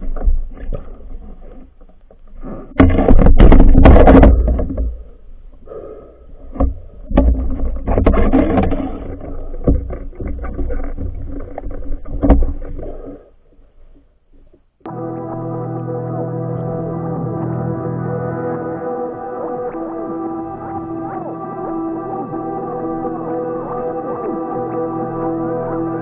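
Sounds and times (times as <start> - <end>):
underwater rumble: 14.9 - 26.0.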